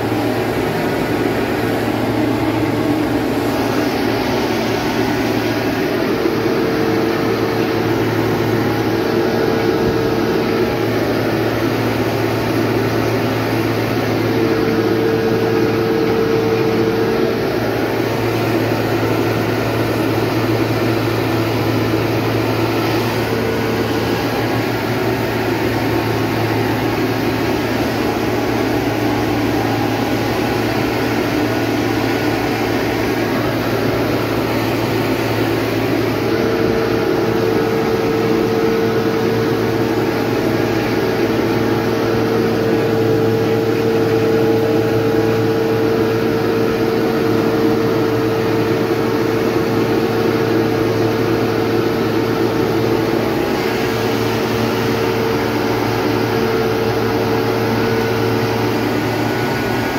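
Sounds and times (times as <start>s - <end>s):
tractor engine hum with whine: 0.0s - 59.9s.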